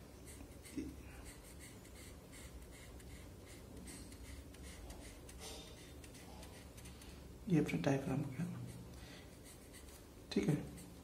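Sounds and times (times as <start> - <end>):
pen scratching on paper: 0.2 - 7.0, 8.5 - 10.0, 10.6 - 11.0.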